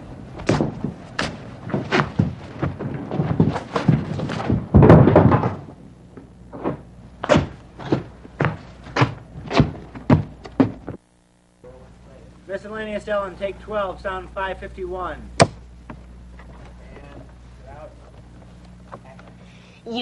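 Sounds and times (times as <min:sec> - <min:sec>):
sharp knocks and thumps: 0:00.4 - 0:11.0, 0:15.4 - 0:16.7.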